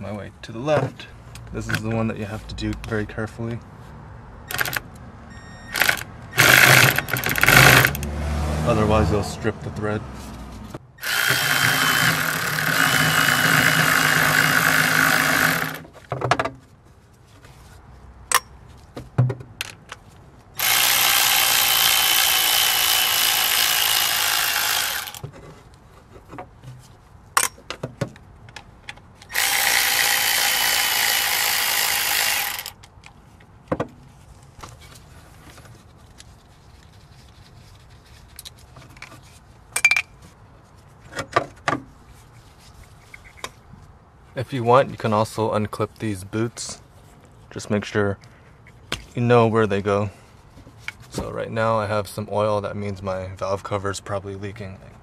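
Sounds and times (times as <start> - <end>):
electric ratchet motor whine: 5.7 - 8.1, 11.0 - 15.8, 20.6 - 25.2, 29.3 - 32.8.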